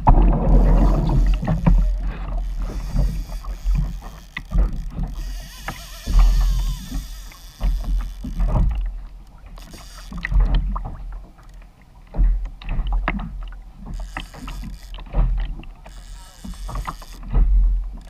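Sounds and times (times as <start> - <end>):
low thumps through hull: 0.0 - 11.4, 12.0 - 18.0
water splashing against hull: 0.0 - 18.0.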